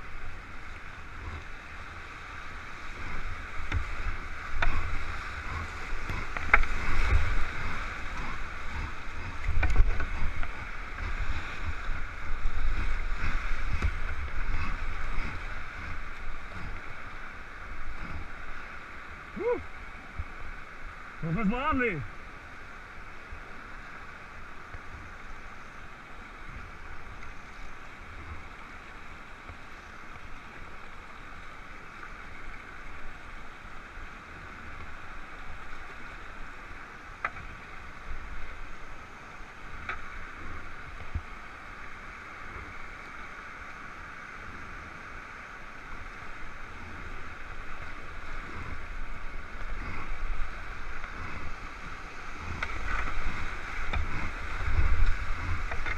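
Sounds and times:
river rapids rushing: 0:00.0 - 0:55.9
kayak bumps and knocks: 0:02.9 - 0:16.8, 0:51.0 - 0:55.9.

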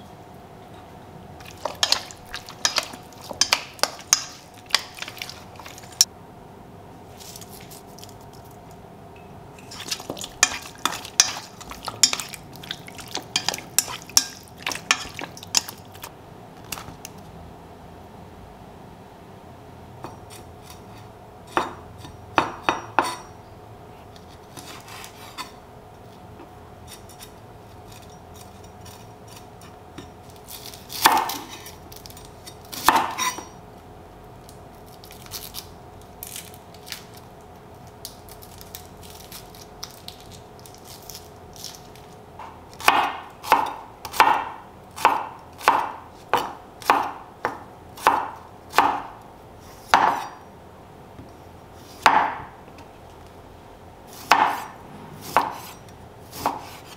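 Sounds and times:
faint steady hum: 0:00.0 - 0:56.9
knife chopping on cutting board: 0:32.7 - 0:33.5, 0:42.4 - 0:49.2, 0:49.8 - 0:50.4, 0:52.0 - 0:52.5, 0:54.1 - 0:56.9.

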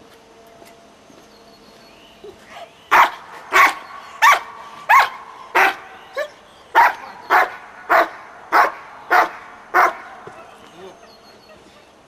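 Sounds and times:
dog barking loudly: 0:02.9 - 0:10.5.

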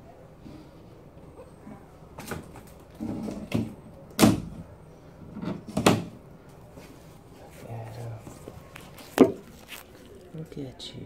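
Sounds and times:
towel rustling: 0:06.8 - 0:10.5.

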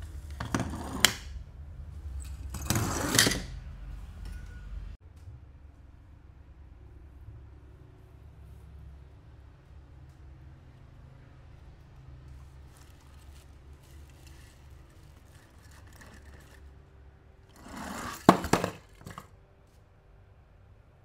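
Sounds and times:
packaging rustling: 0:12.4 - 0:16.7.

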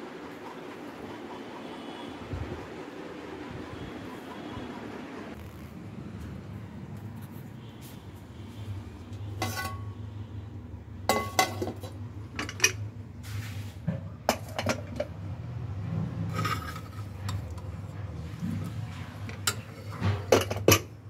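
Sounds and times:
metal pots and lids clinking: 0:09.3 - 0:10.0, 0:11.0 - 0:12.9, 0:13.9 - 0:15.2, 0:16.3 - 0:21.0.

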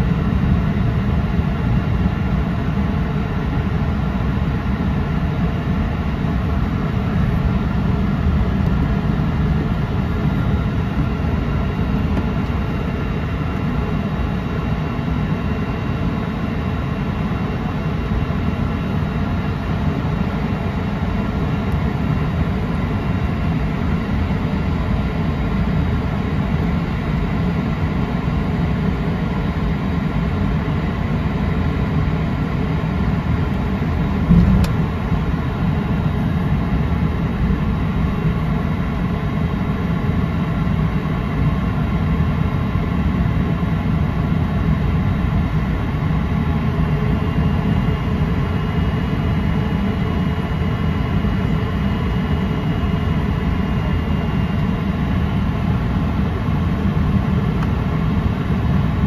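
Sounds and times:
jet engines rumbling and whining: 0:00.0 - 0:59.0
short thump: 0:34.3 - 0:34.9.

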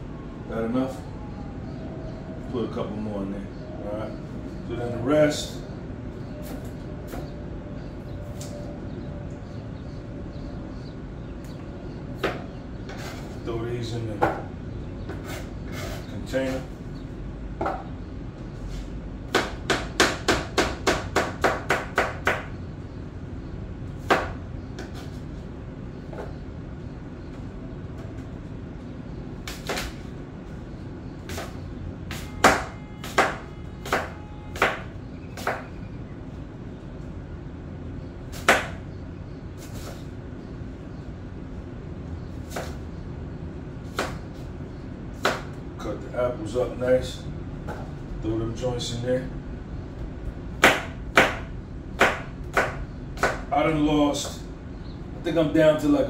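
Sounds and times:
low background hum: 0:00.0 - 0:56.0
knife chopping on cutting board: 0:31.3 - 0:35.7, 0:38.3 - 0:38.8, 0:42.5 - 0:42.8, 0:43.9 - 0:44.2, 0:45.2 - 0:45.6, 0:50.6 - 0:53.5.

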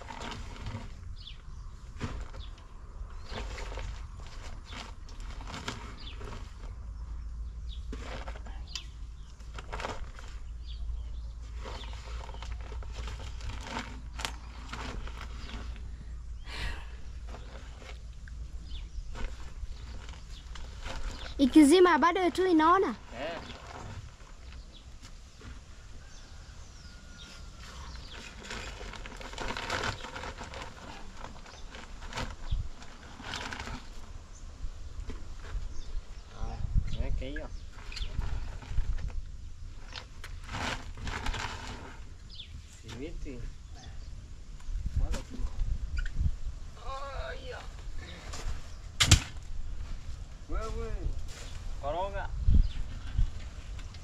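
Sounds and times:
shovel scraping and scooping cement: 0:00.0 - 0:01.0
birds chirping faintly: 0:00.0 - 0:40.5.

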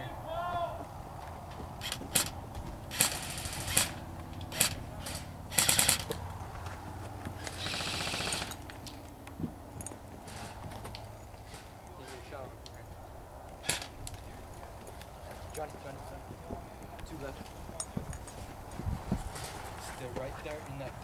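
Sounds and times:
airsoft guns firing: 0:01.8 - 0:06.2, 0:07.4 - 0:08.6, 0:13.6 - 0:14.0.

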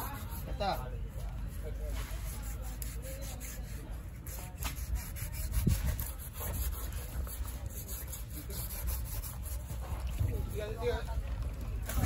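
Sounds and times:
knife scraping through meat: 0:01.9 - 0:10.6.

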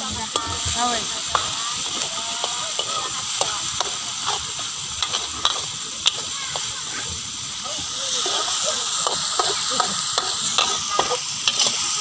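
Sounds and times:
metal spatula scraping wok: 0:00.0 - 0:06.7, 0:08.1 - 0:12.0
paste sizzling in hot oil: 0:00.0 - 0:12.0
spatula clinking on wok: 0:00.2 - 0:04.4, 0:09.0 - 0:11.8.

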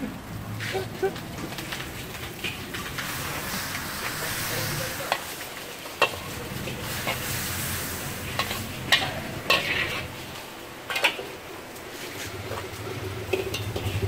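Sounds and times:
food sizzling in oil: 0:00.6 - 0:14.0
spatula scraping in wok: 0:00.6 - 0:14.0
spatula clanking on wok: 0:06.0 - 0:07.3, 0:08.3 - 0:10.1, 0:13.2 - 0:14.0.

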